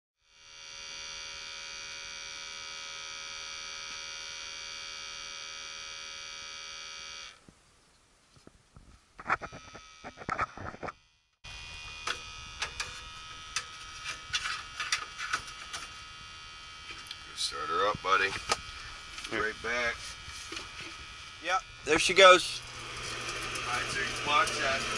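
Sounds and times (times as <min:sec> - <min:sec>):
electric buzz: 0:00.2 - 0:07.4, 0:09.2 - 0:24.9
steady hiss: 0:15.8 - 0:24.9.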